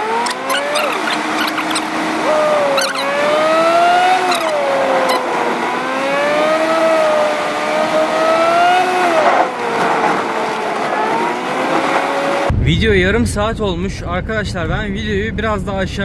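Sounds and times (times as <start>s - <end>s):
racing engine whine revving: 0.0s - 12.5s.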